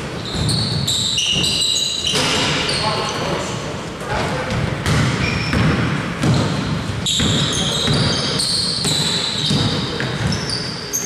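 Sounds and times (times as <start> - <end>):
sneakers squeaking on court: 0.0 - 3.4, 4.5 - 11.0
basketball bouncing on court: 0.2 - 2.6, 4.4 - 10.7
players' voices: 2.2 - 4.9.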